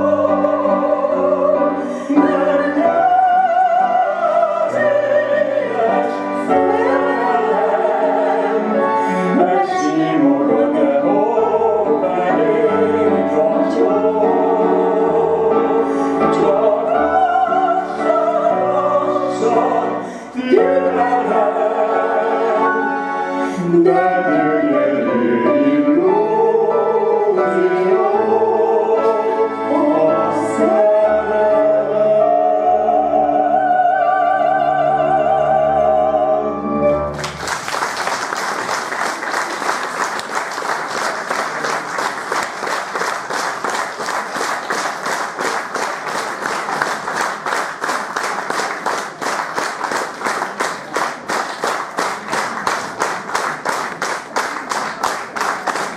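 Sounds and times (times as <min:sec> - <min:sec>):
woman and man singing duet: 0:00.0 - 0:36.6
musical accompaniment: 0:00.0 - 0:55.9
audience applause: 0:37.1 - 0:55.9.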